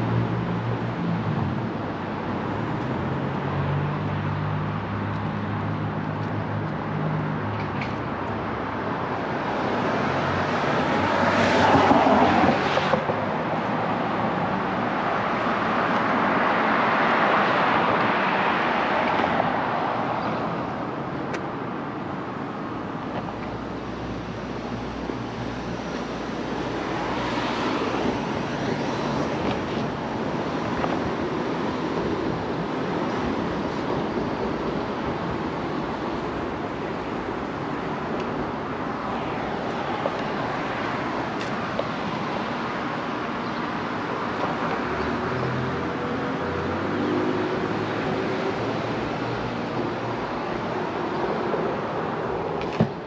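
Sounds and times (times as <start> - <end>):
cars passing: 0.0 - 53.0.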